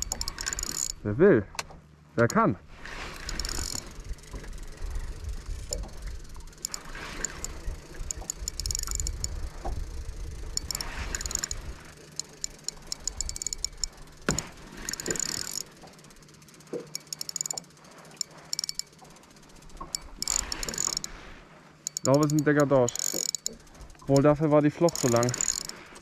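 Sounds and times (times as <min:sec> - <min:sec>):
fishing reel ticking: 0:00.0 - 0:26.0
wind rumble on microphone: 0:04.0 - 0:06.4, 0:07.5 - 0:11.9.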